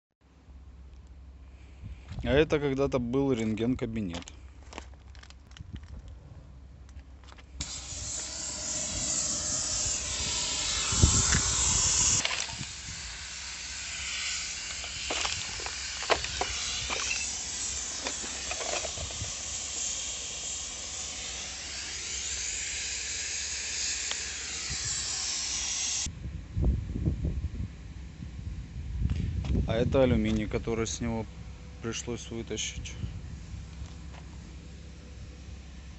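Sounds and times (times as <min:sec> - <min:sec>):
strong steady hiss: 0:07.6 - 0:27.4, 0:29.4 - 0:35.9.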